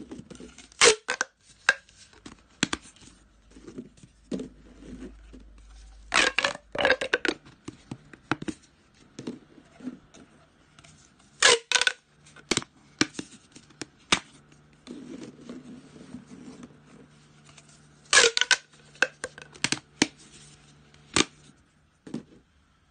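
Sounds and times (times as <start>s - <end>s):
plastic pop tubes popping and crackling: 0.6s - 3.0s, 6.0s - 8.6s, 11.4s - 14.4s, 18.1s - 20.2s, 21.1s - 21.4s.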